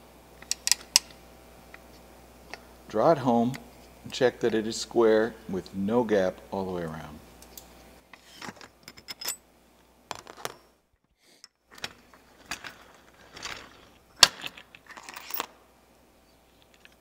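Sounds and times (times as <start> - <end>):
metal tools clicking and clinking: 8.4 - 9.4, 14.4 - 15.5.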